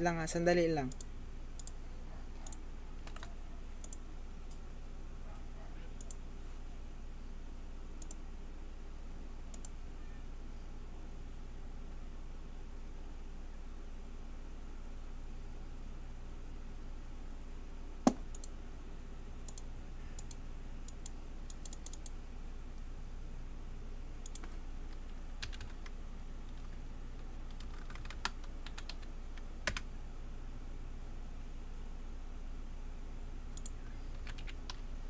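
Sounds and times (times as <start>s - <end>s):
steady low hum: 0.0s - 35.0s
keyboard keystrokes and clicks: 0.8s - 1.8s, 2.4s - 4.6s, 6.0s - 6.2s, 18.1s - 18.5s, 19.5s - 22.2s, 24.2s - 25.9s, 26.5s - 29.9s, 33.6s - 34.8s.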